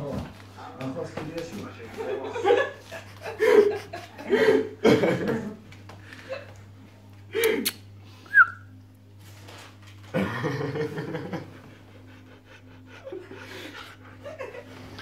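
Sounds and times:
dog panting: 0:11.7 - 0:14.4.

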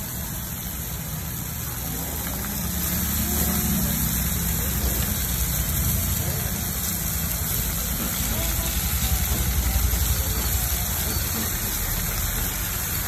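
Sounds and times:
gas burner roaring: 0:00.0 - 0:13.0.

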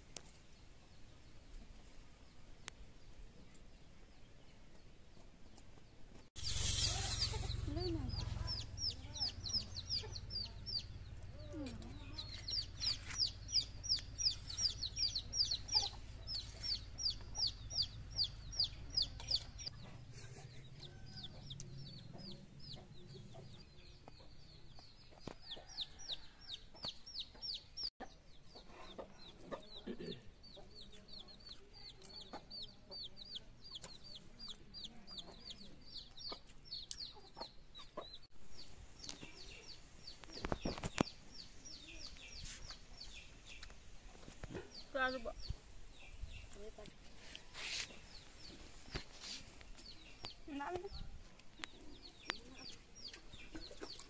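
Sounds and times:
chicks peeping: 0:06.4 - 0:54.0
chicken clucks: 0:06.5 - 0:38.3, 0:46.4 - 0:54.0.

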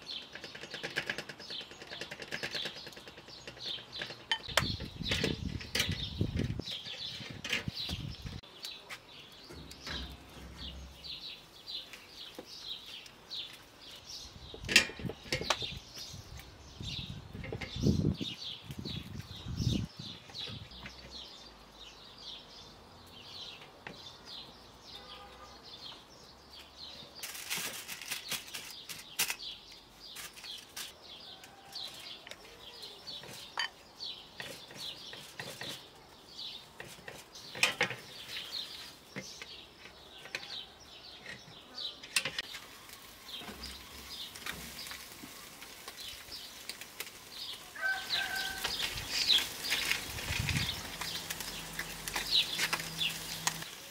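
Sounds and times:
small birds chirping: 0:00.0 - 0:53.9.

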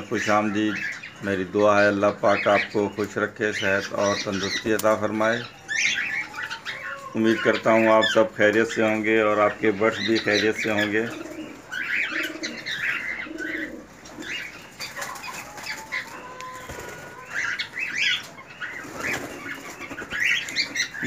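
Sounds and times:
cockatiels chirping and calling: 0:00.0 - 0:21.0
wings fluttering: 0:11.0 - 0:21.0.

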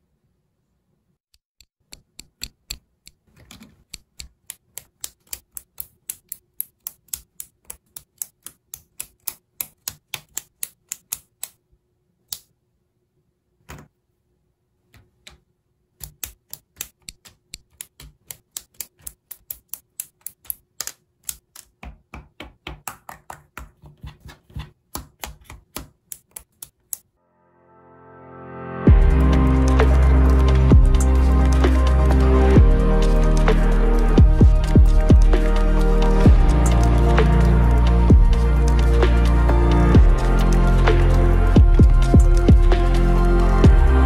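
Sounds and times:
plastic pieces snapping together: 0:16.0 - 0:27.0.

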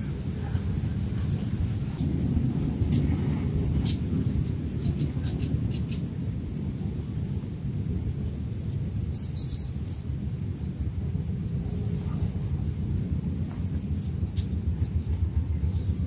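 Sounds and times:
small birds chirping: 0:00.0 - 0:16.0
steady low rumble: 0:00.0 - 0:16.0.

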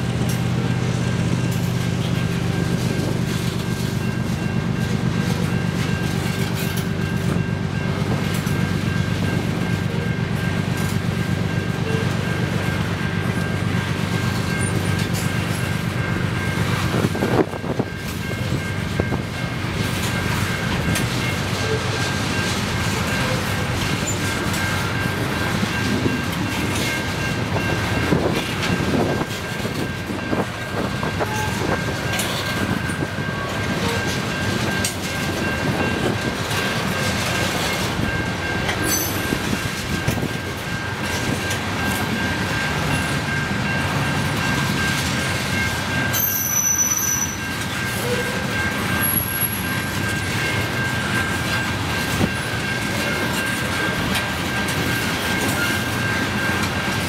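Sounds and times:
train rumbling past: 0:00.0 - 0:57.0
wheels clacking over rail joints: 0:00.0 - 0:57.0
steady high ringing tone: 0:00.1 - 0:57.0.

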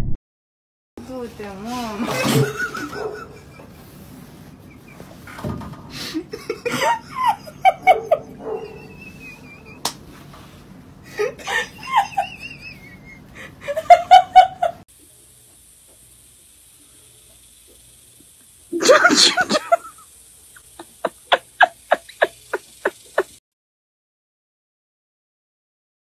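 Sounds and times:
person laughing hard: 0:02.0 - 0:04.0, 0:05.9 - 0:09.9, 0:11.1 - 0:14.8, 0:18.8 - 0:20.0, 0:20.6 - 0:23.4.

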